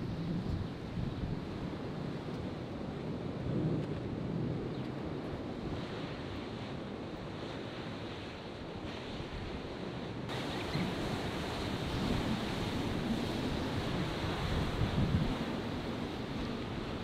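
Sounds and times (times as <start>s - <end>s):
ocean surf washing: 0.0s - 17.0s
wind on microphone: 0.0s - 17.0s.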